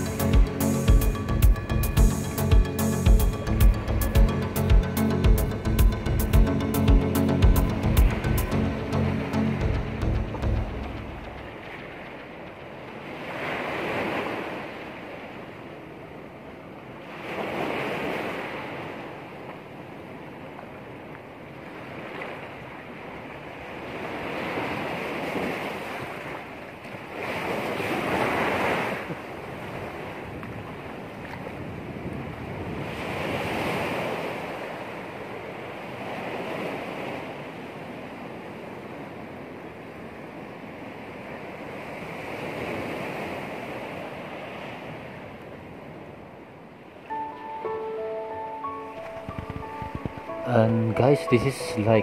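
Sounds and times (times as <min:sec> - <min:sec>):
small waves breaking on sand: 0:13.0 - 0:47.1.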